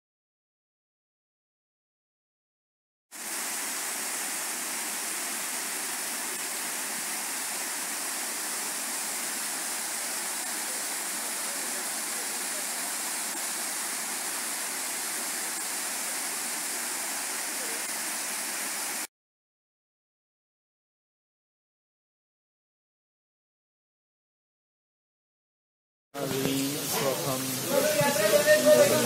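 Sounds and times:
waterfall rushing: 3.2 - 19.1, 26.2 - 29.0.

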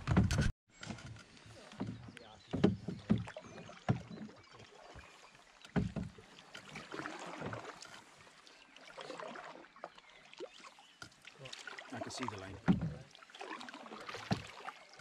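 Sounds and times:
paddle strokes through water: 0.0 - 15.0
water swish: 1.3 - 15.0
paddle knocking on canoe hull: 1.6 - 5.0, 5.6 - 7.9, 11.0 - 14.7.

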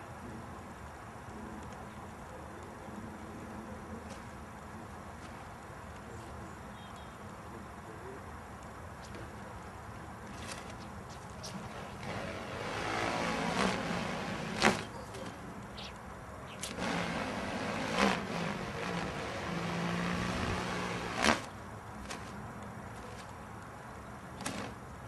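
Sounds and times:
kite sail snapping: 10.2 - 23.7, 24.4 - 24.8
stunt kite whooshing: 11.5 - 14.9, 16.6 - 22.4.

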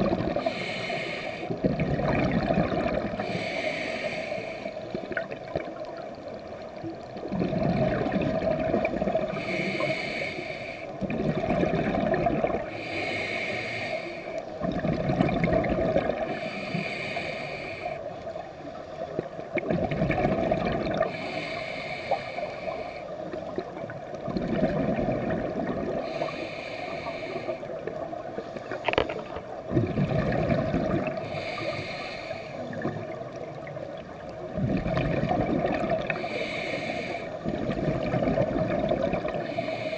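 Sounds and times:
bubbling exhale: 0.0 - 5.6, 7.3 - 18.1, 19.6 - 28.0, 28.6 - 33.8, 34.4 - 39.9
regulator hissing inhale: 0.3 - 1.6, 3.2 - 4.9, 9.2 - 11.0, 12.6 - 14.6, 16.2 - 18.8, 21.0 - 23.4, 26.0 - 29.1, 31.1 - 32.8, 36.1 - 38.1, 39.3 - 39.9.

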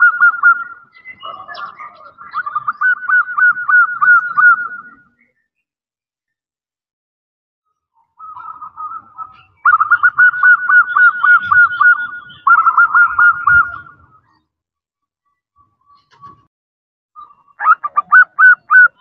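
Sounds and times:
dove cooing rapidly: 0.0 - 5.0, 8.2 - 14.1, 17.6 - 19.0.

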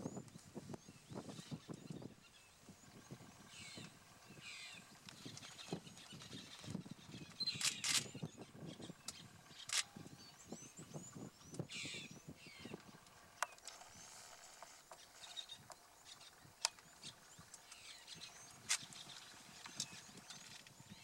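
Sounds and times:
birds chirping and calling: 0.0 - 21.0
sharp clicks: 7.5 - 8.1.

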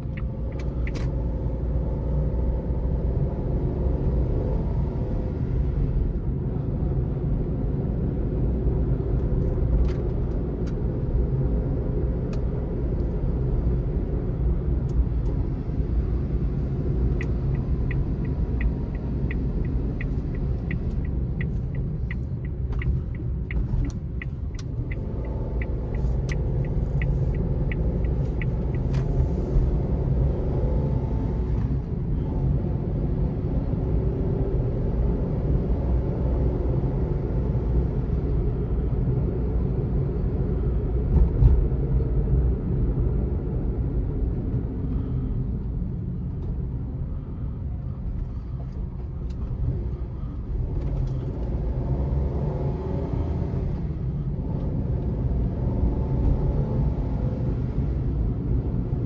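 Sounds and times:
turn signal ticking: 0.0 - 2.9, 14.6 - 32.1
car engine and road rumble: 0.0 - 59.0.

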